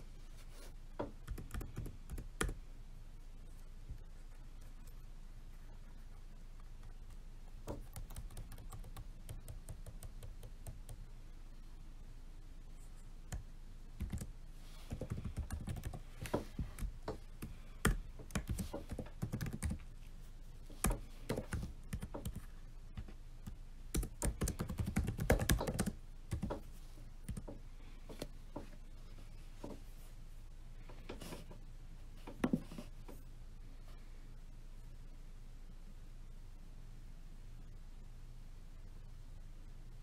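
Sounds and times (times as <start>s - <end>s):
typing on laptop keyboard: 1.2s - 2.6s, 7.6s - 11.0s, 14.0s - 14.3s, 14.9s - 19.9s, 20.8s - 26.6s, 27.2s - 27.6s.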